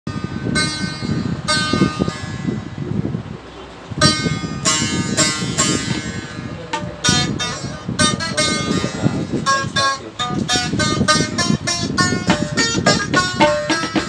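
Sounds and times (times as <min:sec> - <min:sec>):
plucked lute runs: 0:00.1 - 0:03.1, 0:03.9 - 0:14.0
tabla drumming: 0:04.0 - 0:14.0.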